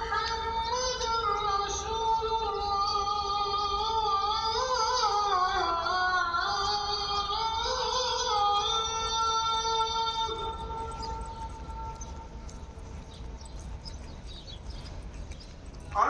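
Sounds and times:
person chanting call to prayer: 0.0s - 12.2s.

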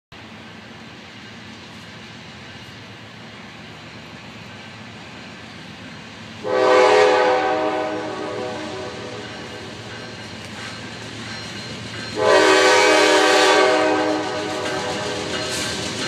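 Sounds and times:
locomotive air horn: 6.4s - 9.7s, 12.2s - 15.3s.

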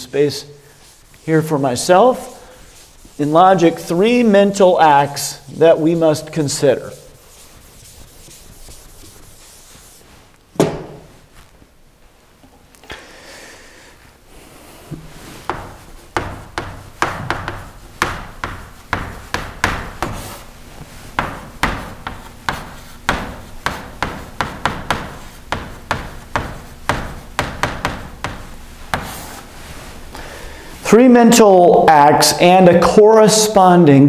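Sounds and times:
chalk tapping and scraping: 0.7s - 11.5s, 14.6s - 30.0s.

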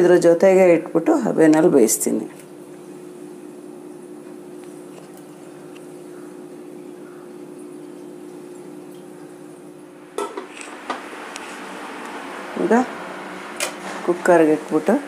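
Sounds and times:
steel cookware clanking: 10.2s - 10.5s.

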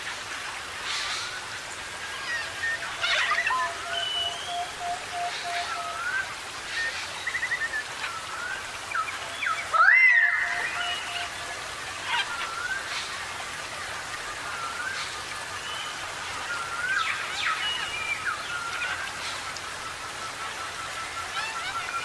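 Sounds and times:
background hiss: 0.0s - 22.0s
birds calling with whistles: 0.9s - 13.3s, 14.2s - 22.0s.

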